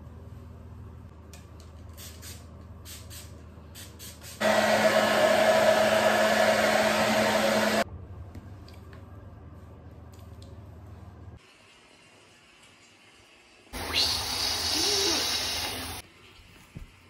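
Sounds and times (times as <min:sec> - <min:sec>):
hair dryer blowing: 0:04.4 - 0:07.8, 0:13.8 - 0:16.0.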